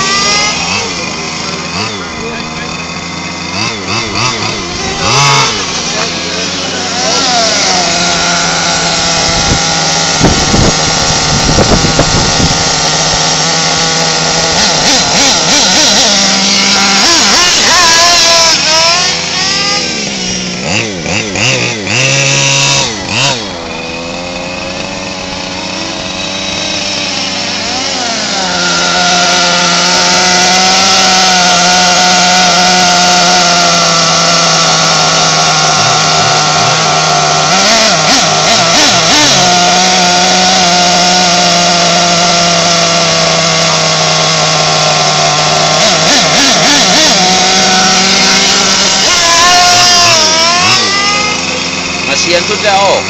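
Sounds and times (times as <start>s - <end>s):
model truck engine revving: 0.0s - 53.0s.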